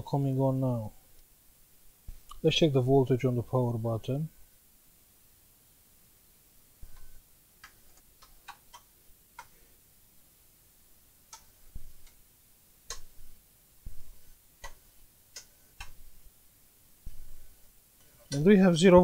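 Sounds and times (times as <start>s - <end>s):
probe tips clicking on circuit board: 6.9s - 9.6s, 12.9s - 13.3s, 14.6s - 16.0s, 18.3s - 18.5s.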